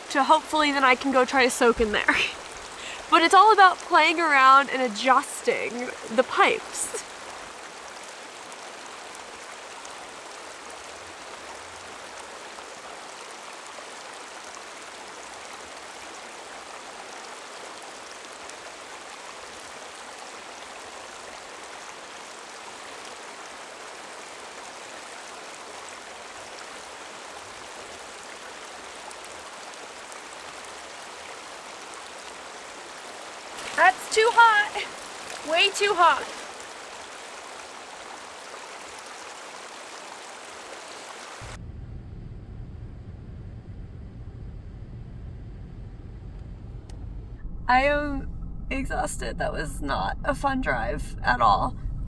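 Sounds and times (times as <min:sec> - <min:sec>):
water pouring into tub: 0:33.5 - 0:36.5.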